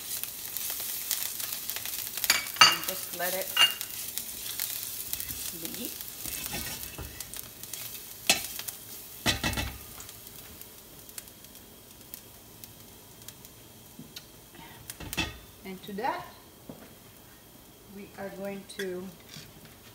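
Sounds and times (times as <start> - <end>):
spatula stirring in pan: 0.0 - 9.8
garlic sizzling in oil: 0.0 - 19.9.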